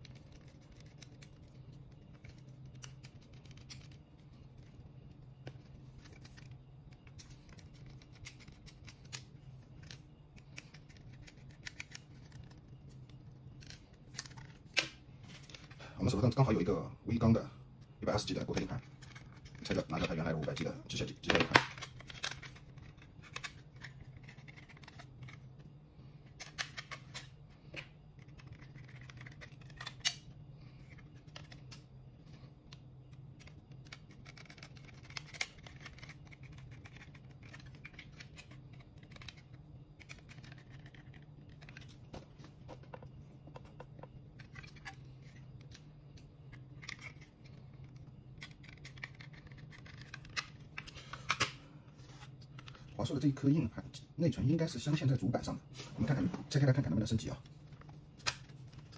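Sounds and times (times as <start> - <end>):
low steady hum: 0.0 - 58.9.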